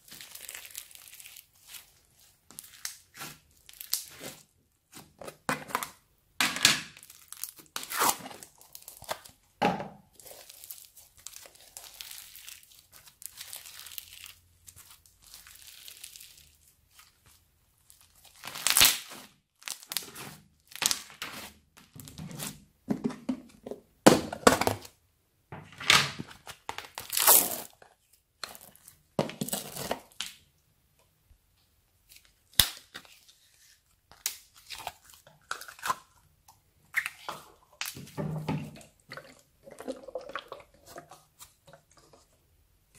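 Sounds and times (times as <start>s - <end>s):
sticky slime pops and crackles: 18.4s - 20.1s.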